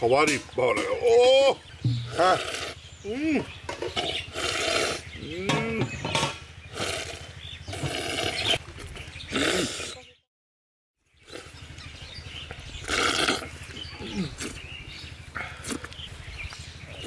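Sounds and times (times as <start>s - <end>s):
men slurping and smacking: 2.1s - 2.8s, 3.9s - 5.9s, 6.8s - 8.6s, 9.3s - 10.0s, 11.2s - 11.8s, 12.8s - 14.7s, 15.3s - 16.1s.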